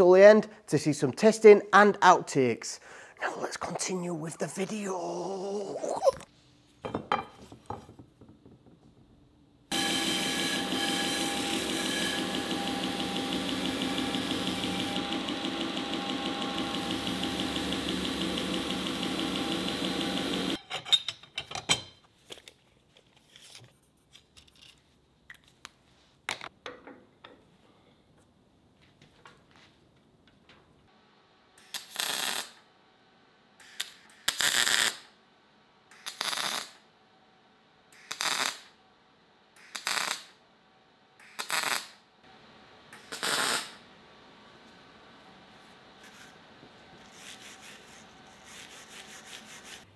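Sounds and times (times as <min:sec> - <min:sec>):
belt grinder grinding steel: 0:09.7 - 0:20.6
welder tack-welding bursts: 0:09.7 - 0:20.6, 0:31.6 - 0:32.6, 0:33.6 - 0:35.1, 0:35.9 - 0:36.8, 0:38.0 - 0:38.7, 0:39.6 - 0:40.3, 0:41.2 - 0:42.0, 0:43.0 - 0:43.8.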